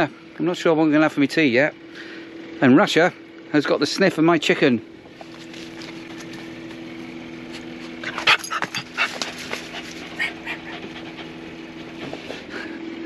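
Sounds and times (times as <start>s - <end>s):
steady low hum: 0.0s - 13.0s
dog whimpering and yipping: 7.7s - 12.4s.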